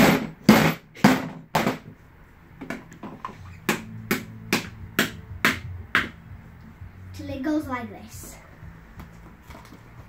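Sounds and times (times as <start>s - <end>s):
hammer knocking on metal hub: 3.7s - 6.2s.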